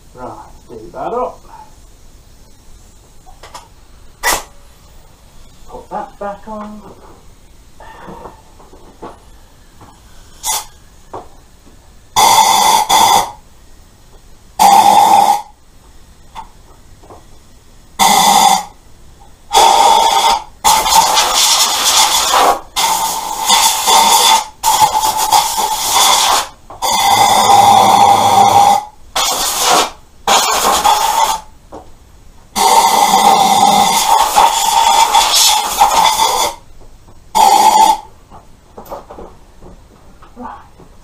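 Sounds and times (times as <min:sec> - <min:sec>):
air blow gun hissing blasts: 0:09.6 - 0:10.8, 0:19.5 - 0:31.5, 0:32.6 - 0:36.6.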